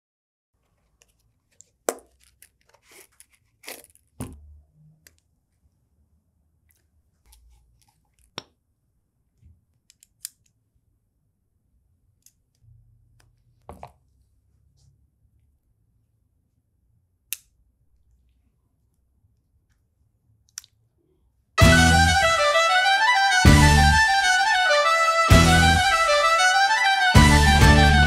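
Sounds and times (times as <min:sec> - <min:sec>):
multitool clicks and snaps: 0:17.3 - 0:17.6.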